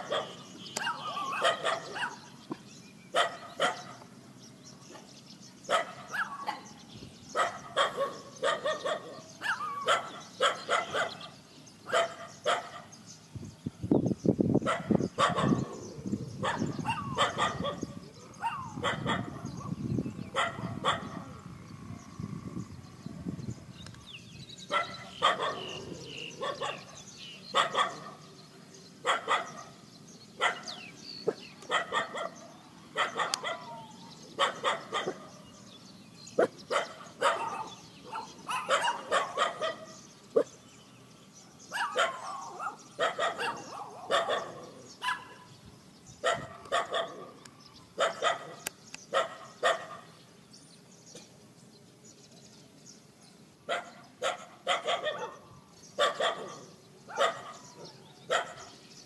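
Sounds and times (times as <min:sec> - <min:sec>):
dogs barking: 0:00.0 - 0:02.3, 0:03.1 - 0:04.1, 0:04.9 - 0:12.9, 0:14.6 - 0:21.4, 0:24.7 - 0:28.3, 0:29.0 - 0:29.8, 0:30.4 - 0:35.5, 0:36.3 - 0:40.6, 0:41.7 - 0:45.5, 0:46.2 - 0:47.4, 0:48.0 - 0:50.2, 0:53.7 - 0:58.8.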